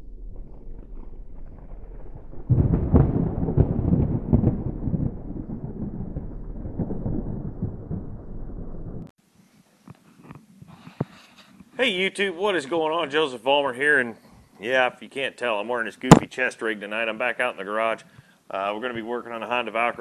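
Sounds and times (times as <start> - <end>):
thunder rumbling with sharp cracks: 0.0 - 9.1.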